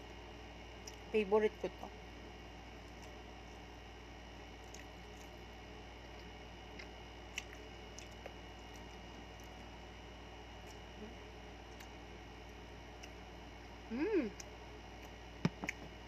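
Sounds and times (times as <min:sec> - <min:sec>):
low background hum: 0:00.0 - 0:16.0
fingers squishing into rice: 0:02.8 - 0:03.7, 0:04.4 - 0:09.8, 0:10.4 - 0:13.3
chewing: 0:04.6 - 0:05.4, 0:06.0 - 0:09.6, 0:11.6 - 0:13.2.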